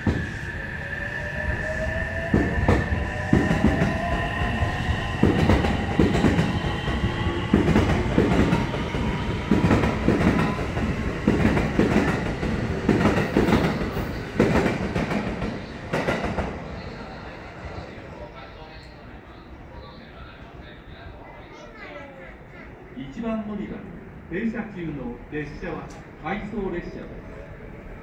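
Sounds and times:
electric train whine: 0.0s - 18.2s.

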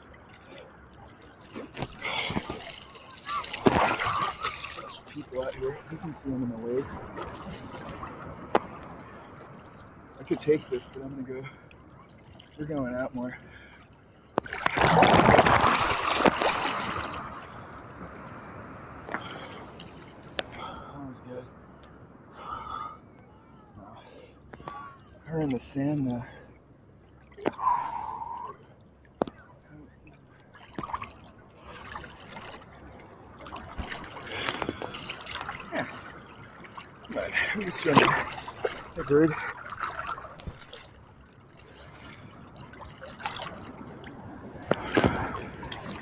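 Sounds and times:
wave splashing over swimmer: 0.0s - 9.4s, 14.4s - 20.7s, 41.7s - 46.0s
water sloshing and splashing: 0.0s - 22.0s, 24.0s - 46.0s
small clicks and gurgles: 33.4s - 35.8s.

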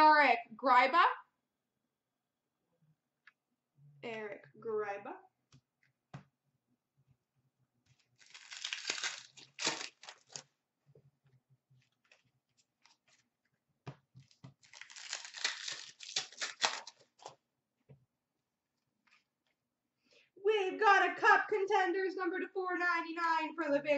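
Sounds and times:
wrapper tearing and crinkling: 8.2s - 10.4s, 14.6s - 17.4s.

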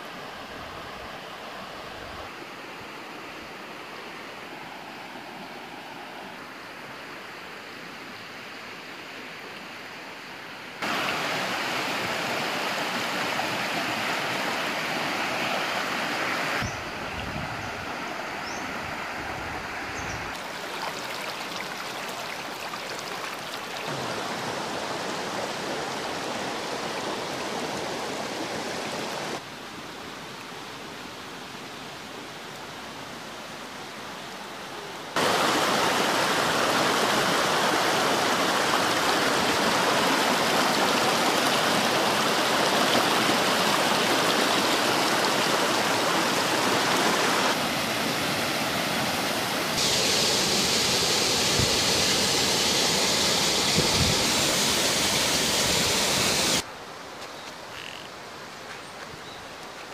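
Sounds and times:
water gushing from an outlet: 10.8s - 16.0s, 20.3s - 29.3s, 35.2s - 56.6s
water rushing over rocks: 10.8s - 17.1s, 18.8s - 29.5s, 35.1s - 56.7s
white-water rapids: 10.8s - 17.1s, 17.8s - 29.5s, 32.9s - 56.7s.

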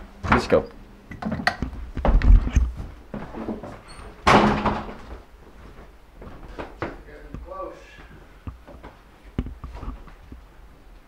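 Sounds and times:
footsteps on stairs: 4.9s - 10.4s.

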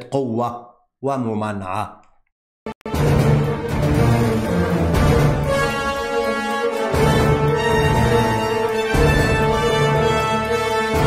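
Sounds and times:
held orchestral chords: 2.8s - 11.0s.

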